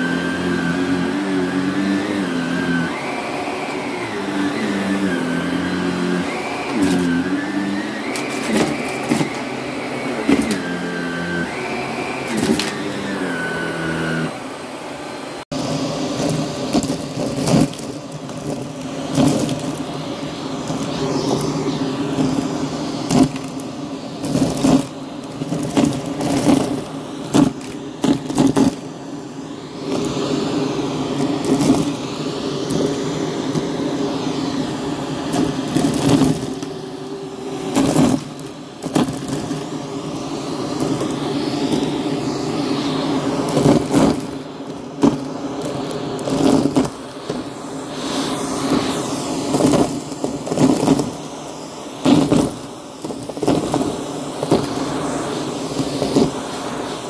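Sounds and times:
vacuum cleaner motor drone: 0:00.0 - 0:57.0
sharp clicks and crackles: 0:23.1 - 0:28.9, 0:31.2 - 0:32.0, 0:35.3 - 0:36.7, 0:37.7 - 0:40.2, 0:43.5 - 0:47.5, 0:49.5 - 0:51.2, 0:52.0 - 0:54.8.

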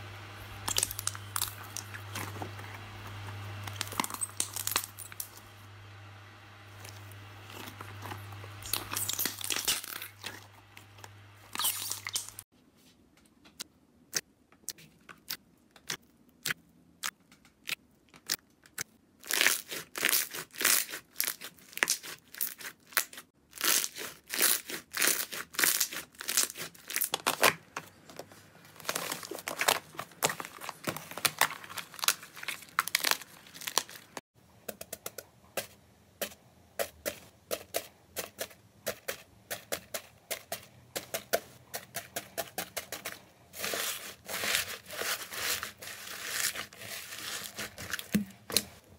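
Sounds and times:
slime popping and crackling: 0:00.6 - 0:01.9, 0:08.6 - 0:10.3
foam slime crackling: 0:00.6 - 0:02.2, 0:43.5 - 0:48.3.

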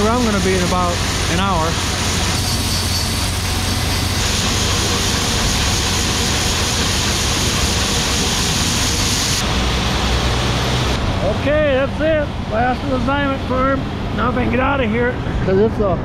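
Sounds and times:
grain pouring hiss: 0:00.1 - 0:10.9.

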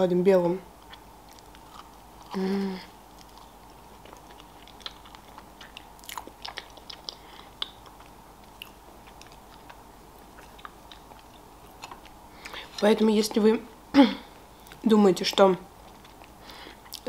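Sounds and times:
person chewing cake: 0:00.7 - 0:13.4, 0:14.3 - 0:17.0.

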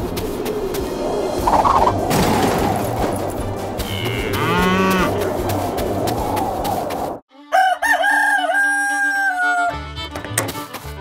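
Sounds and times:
rooster crowing: 0:07.5 - 0:09.8.

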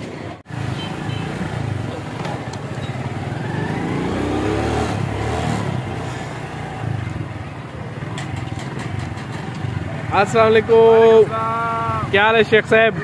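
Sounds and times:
small motorcycle engine running: 0:00.9 - 0:07.3.

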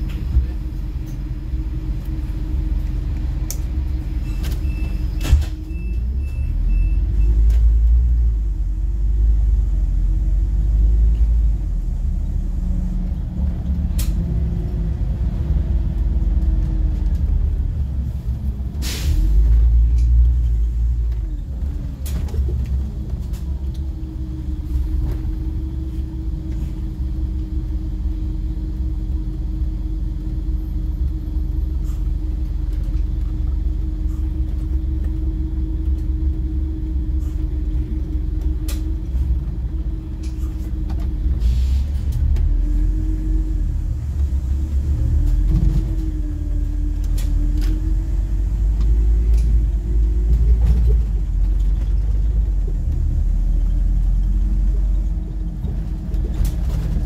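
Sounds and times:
bus diesel engine accelerating: 0:00.0 - 0:57.0
low road rumble: 0:00.0 - 0:57.0
hiss of air: 0:18.8 - 0:19.4, 0:41.4 - 0:42.0.

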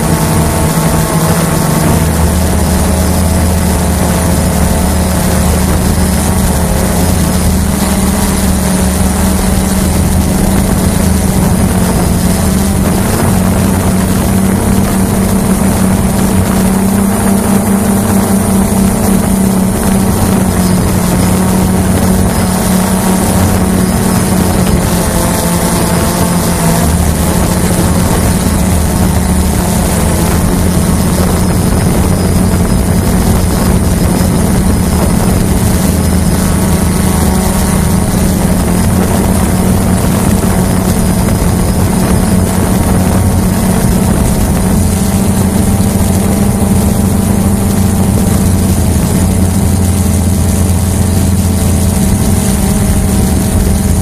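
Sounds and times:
drone propellers humming: 0:00.0 - 0:54.0.

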